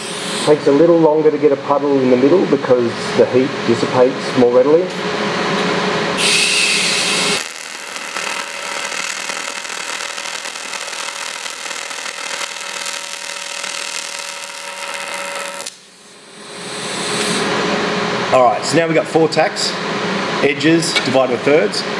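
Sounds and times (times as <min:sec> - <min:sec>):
welding arc buzzing and hissing: 0:00.0 - 0:00.6, 0:06.2 - 0:17.7.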